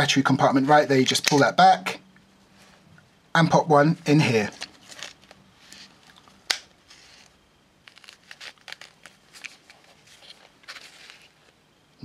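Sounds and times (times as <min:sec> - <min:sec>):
fabric rustling: 0:06.8 - 0:11.6.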